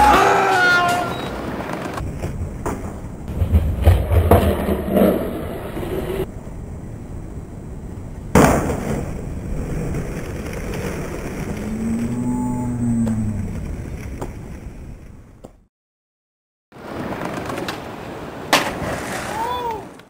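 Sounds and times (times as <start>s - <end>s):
skateboard wheels rumbling on concrete: 0.0s - 6.3s, 8.1s - 15.6s, 16.8s - 20.0s
skateboard landing slam: 2.1s - 5.4s, 8.3s - 9.2s, 18.5s - 19.4s.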